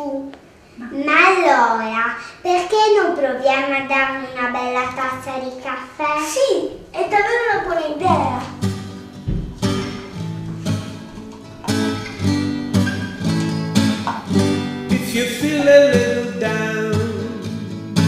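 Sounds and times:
strummed acoustic guitar: 7.0 - 18.0
person singing: 14.9 - 18.0.

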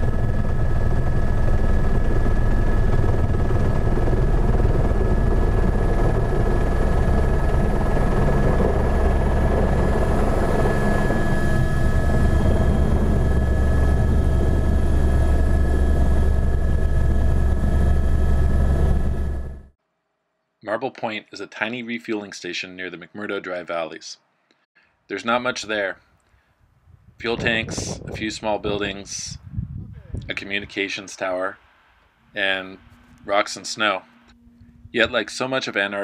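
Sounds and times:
helicopter rotor rumble: 0.0 - 19.8, 27.1 - 31.3, 32.1 - 35.9
turbine whine: 0.0 - 19.8, 27.4 - 36.0.

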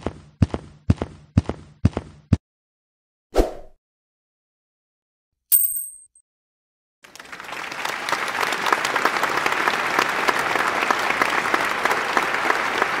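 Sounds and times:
crowd applause: 7.0 - 13.0.

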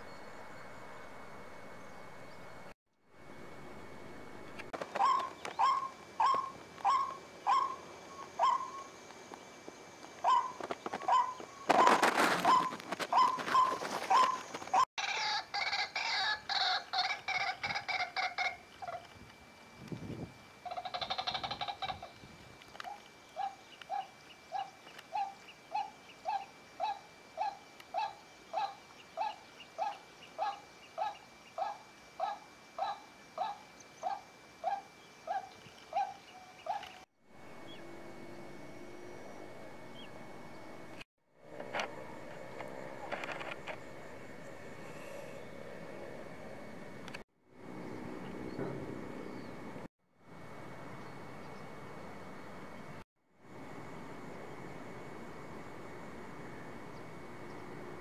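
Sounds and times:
low outdoor background: 0.0 - 58.0
moorhen calling: 4.8 - 8.9, 10.2 - 19.1, 20.6 - 22.1
marsh birds calling: 4.8 - 19.1, 20.6 - 37.0.

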